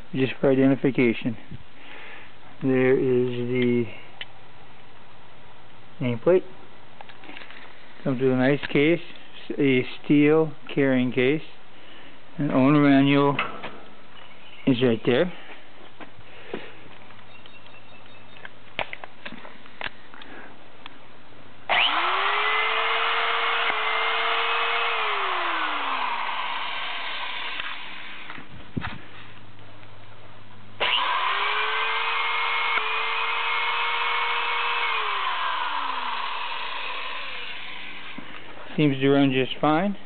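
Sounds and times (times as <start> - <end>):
hydraulic crimper motor running: 21.7 - 28.4, 30.8 - 38.5.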